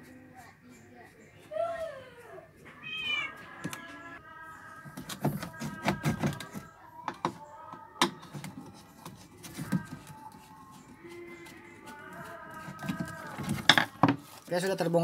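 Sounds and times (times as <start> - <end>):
parts knocking and clattering: 12.6 - 14.2.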